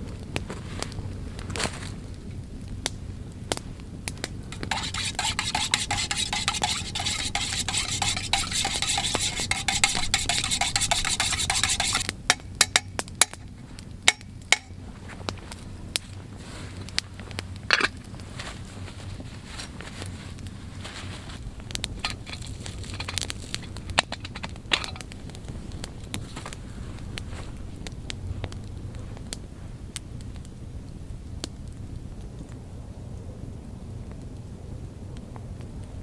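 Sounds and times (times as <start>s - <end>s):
spoon scraping inside metal pot: 4.5s - 12.9s, 22.0s - 25.0s
spoon clinking on metal pot: 4.6s - 13.4s.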